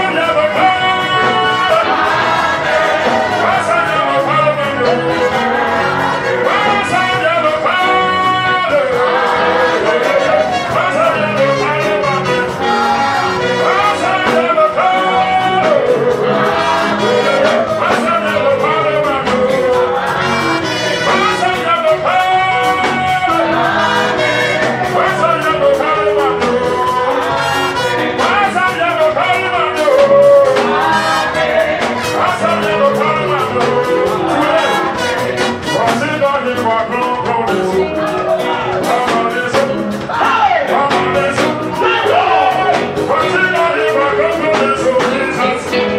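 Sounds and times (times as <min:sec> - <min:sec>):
person singing into a microphone: 0:00.0 - 0:45.9
praise music over loudspeakers: 0:00.0 - 0:45.9.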